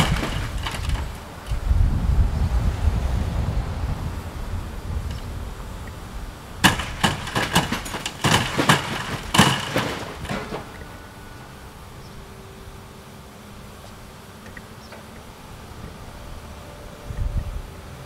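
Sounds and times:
building crashing and debris clattering: 0:00.0 - 0:01.6, 0:06.6 - 0:11.2
steady background noise: 0:00.0 - 0:18.0.

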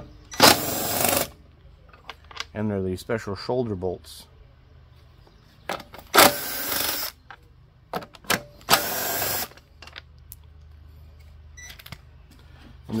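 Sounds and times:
cordless power driver spinning: 0:08.7 - 0:09.6.

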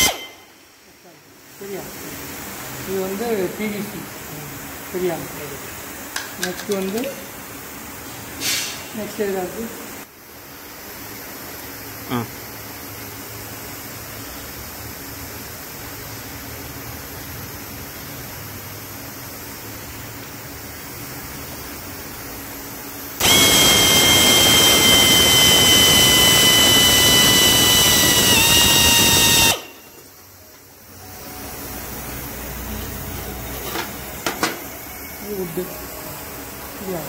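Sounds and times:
pneumatic drill whining: 0:00.0 - 0:00.5, 0:23.2 - 0:30.0
steady air hiss: 0:07.3 - 0:14.8, 0:23.0 - 0:33.6.

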